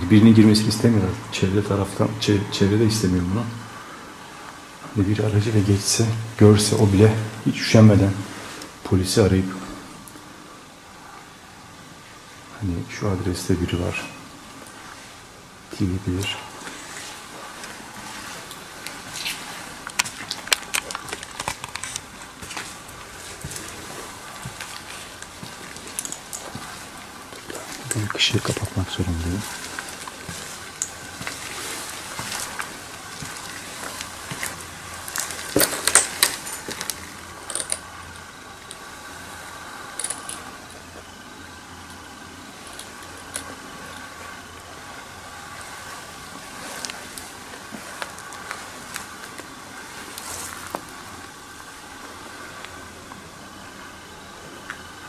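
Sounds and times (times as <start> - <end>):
footsteps on gritty floor: 16.7 - 37.0.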